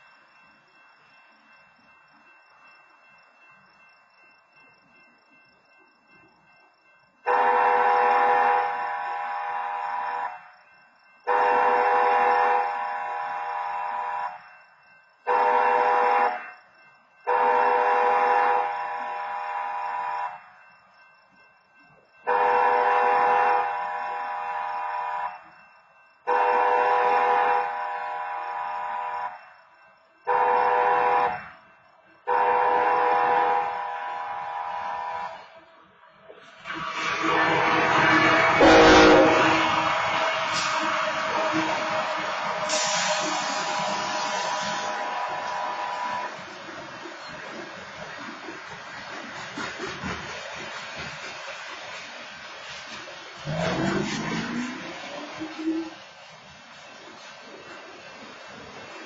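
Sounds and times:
diesel locomotive passing: 0.0s - 59.0s
railroad crossing horn blasts: 7.2s - 10.5s, 11.2s - 14.5s, 15.2s - 16.6s, 17.2s - 20.6s, 22.2s - 25.5s, 26.2s - 29.6s, 30.2s - 31.6s, 32.2s - 35.6s, 36.6s - 46.4s.

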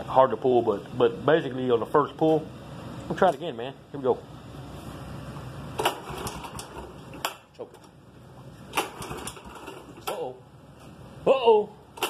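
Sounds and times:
mower pull-start whir: 5.8s - 7.2s, 8.7s - 10.3s.

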